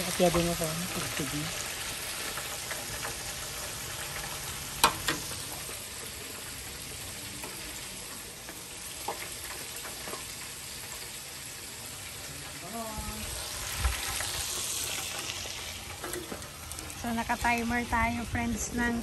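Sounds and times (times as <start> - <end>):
oil bubbling in deep fryer: 0.0 - 19.0.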